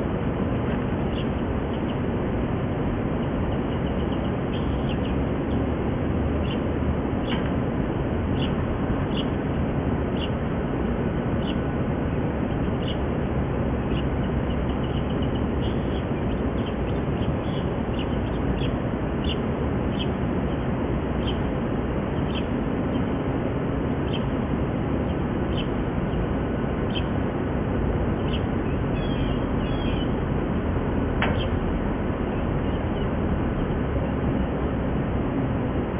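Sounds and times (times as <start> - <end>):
ducklings peeping: 3.5 - 5.6, 8.3 - 9.4, 13.8 - 23.2, 25.0 - 27.3, 28.1 - 30.3, 31.0 - 34.1.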